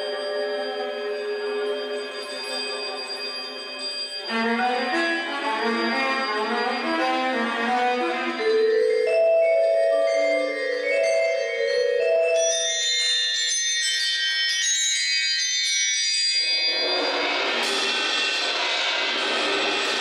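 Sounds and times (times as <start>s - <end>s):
viola held tones: 0.0s - 10.6s
mallet percussion notes: 0.0s - 16.4s.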